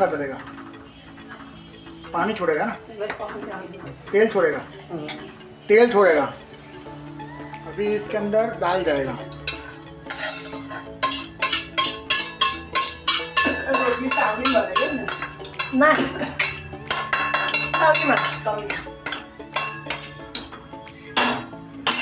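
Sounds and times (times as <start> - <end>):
spatula stirring pan: 9.2 - 20.6
steel spoon clinking on plate: 9.3 - 20.6.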